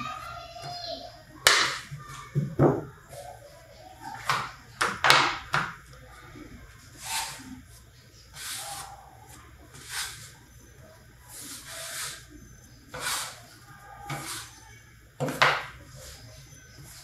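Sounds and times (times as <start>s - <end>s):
dough slapped on wooden table: 1.4s - 2.8s, 15.2s - 15.8s
soft rubbing of dough: 5.8s - 17.0s.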